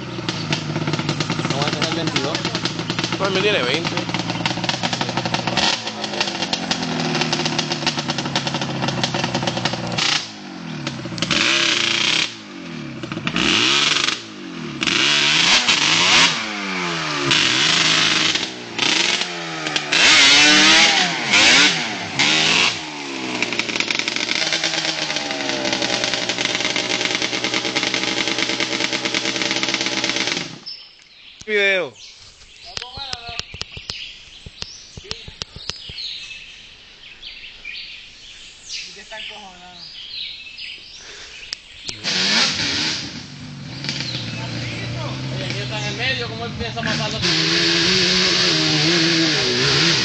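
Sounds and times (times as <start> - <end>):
quad engine revving: 0.0 - 30.7, 41.9 - 50.0
wheels spinning in mud: 0.0 - 30.8, 42.0 - 50.0.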